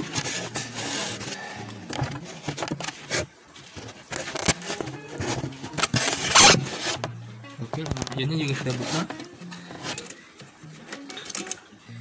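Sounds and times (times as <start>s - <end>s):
screwdriver scraping metal: 4.1s - 7.1s, 8.1s - 10.2s.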